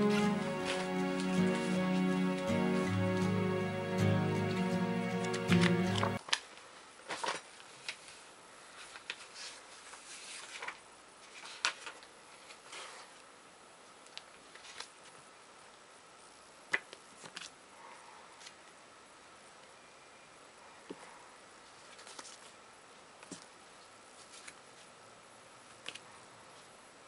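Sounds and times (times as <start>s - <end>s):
plastic and paper crinkling: 6.3s - 13.2s, 21.7s - 22.6s, 24.2s - 24.9s.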